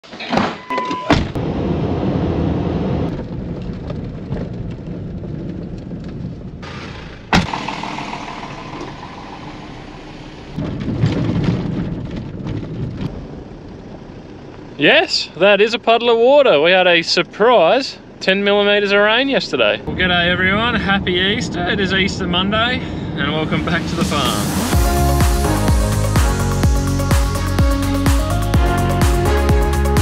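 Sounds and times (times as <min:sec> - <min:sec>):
short beep: 0:00.6 - 0:01.2
vehicle engine and road noise: 0:01.0 - 0:30.0.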